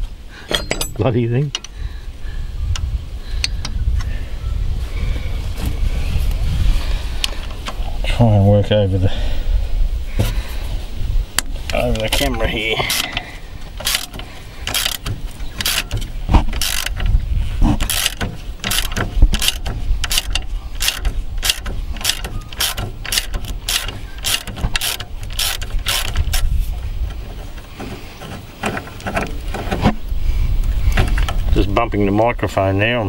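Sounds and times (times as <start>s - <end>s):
socket ratchet clicking: 12.9s - 17.2s, 17.8s - 26.6s
microphone bump rumble: 15.0s - 20.6s.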